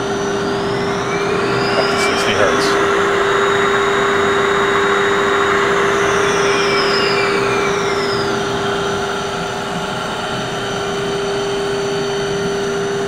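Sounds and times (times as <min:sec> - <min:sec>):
steady hum: 0:00.8 - 0:06.5.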